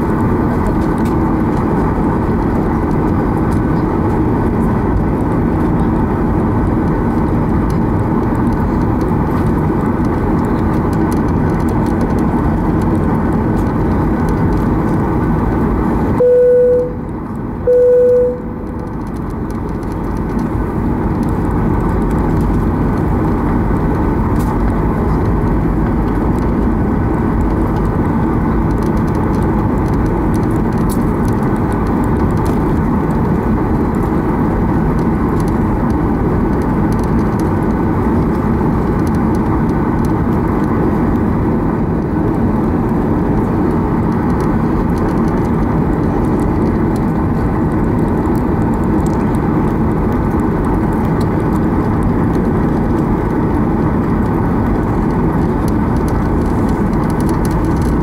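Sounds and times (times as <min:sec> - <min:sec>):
jet engines rumbling with whine: 0:00.0 - 0:58.0
short chime tones: 0:16.2 - 0:17.0, 0:17.7 - 0:18.6.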